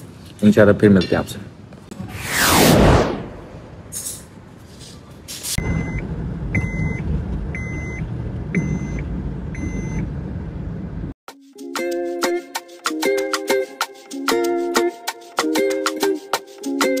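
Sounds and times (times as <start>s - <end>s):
car engine and road rumble: 5.6s - 11.2s.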